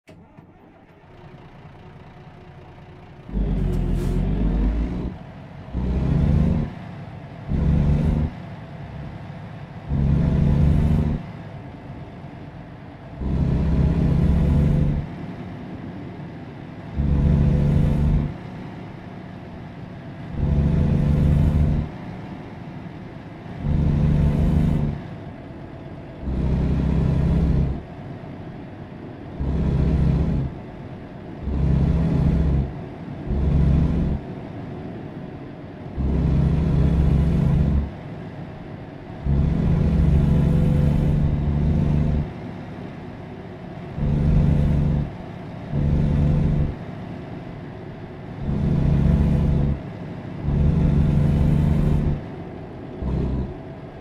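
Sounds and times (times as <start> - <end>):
engine idling: 0.0 - 54.0
engine revving in short bursts: 3.3 - 6.8, 7.4 - 8.4, 9.9 - 11.2, 13.2 - 15.1, 17.0 - 18.4, 20.3 - 21.9, 23.6 - 25.0, 26.2 - 27.8, 29.4 - 30.6, 31.4 - 32.7, 33.3 - 34.2, 36.0 - 38.0, 39.2 - 42.3, 43.9 - 46.8, 48.4 - 52.3, 53.0 - 53.6.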